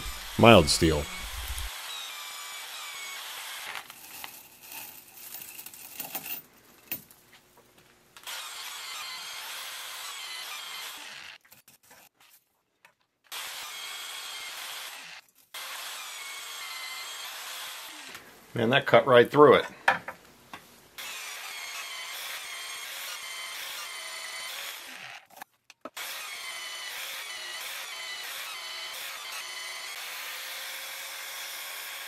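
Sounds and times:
drill cutting through steel: 0.0 - 4.7, 8.2 - 11.4, 13.3 - 18.2, 21.0 - 25.3, 26.0 - 32.0.

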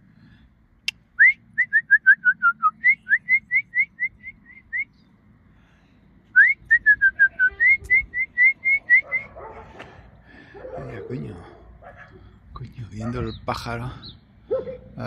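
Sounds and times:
person whistling birdlike notes: 6.4 - 9.3.

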